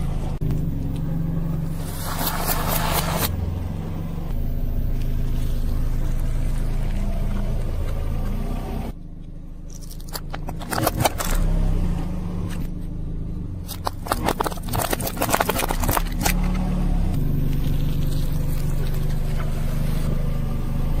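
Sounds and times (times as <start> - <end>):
car engine rumble: 0.0 - 21.0
tyre crushing plastic glasses: 9.7 - 11.5, 13.6 - 16.6.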